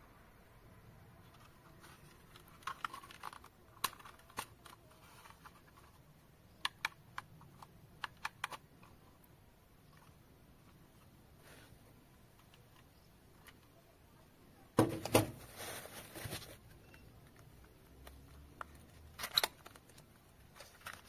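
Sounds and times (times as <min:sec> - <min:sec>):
plastic clicks and snaps: 0:02.3 - 0:05.6, 0:06.5 - 0:09.0.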